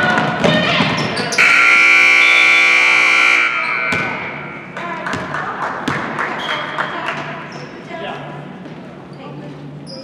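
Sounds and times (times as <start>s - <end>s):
scoreboard horn buzzing: 1.4s - 4.6s.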